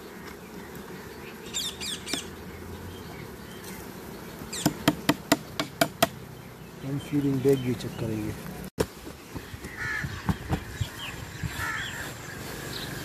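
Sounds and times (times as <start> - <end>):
honey bees humming: 0.0 - 13.0
metal hive tool clicking on wood: 4.6 - 6.2.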